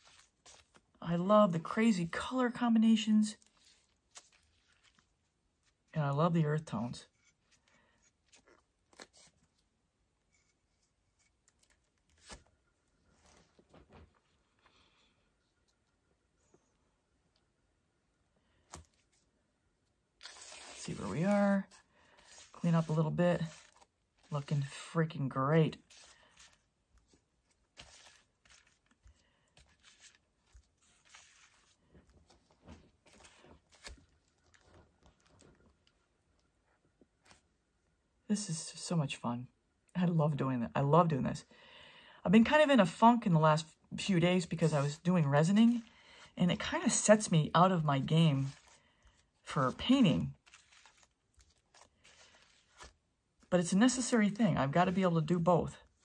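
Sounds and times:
gloved hands tapping and rustling: 48.4 - 53.5.

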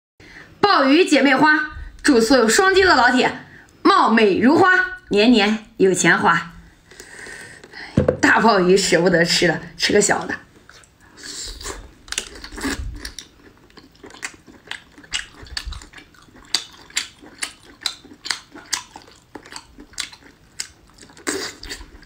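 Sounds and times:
wet chewing mouth clicks: 11.7 - 22.0.

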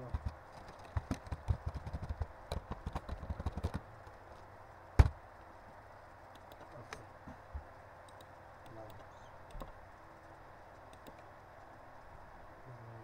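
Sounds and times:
keyboard typing: 0.0 - 3.8, 8.1 - 9.8, 10.9 - 11.3.

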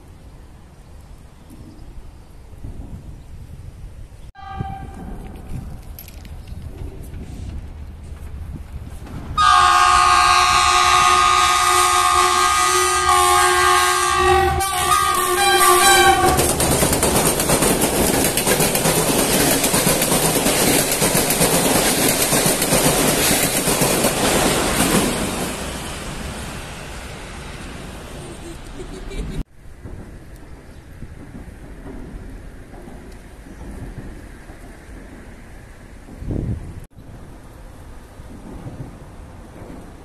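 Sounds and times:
locomotive horn: 4.4 - 5.2, 9.4 - 16.5
train wheels clattering on rails: 4.6 - 40.0.

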